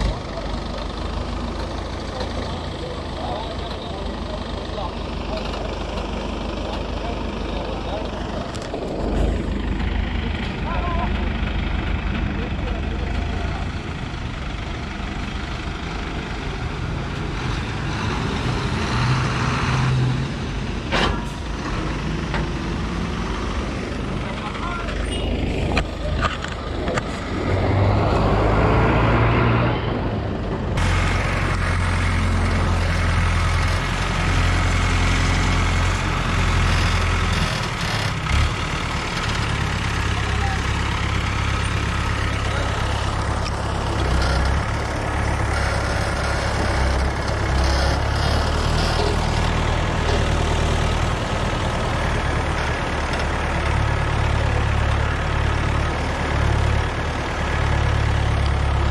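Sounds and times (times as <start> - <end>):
diesel engine droning: 0.0 - 58.9.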